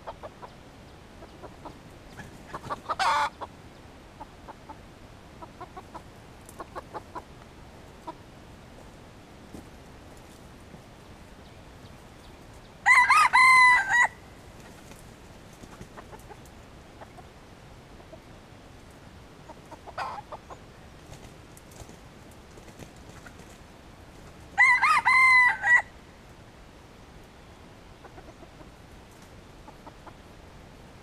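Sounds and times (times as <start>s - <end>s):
rooster crowing: 12.8s - 14.3s, 24.6s - 26.0s.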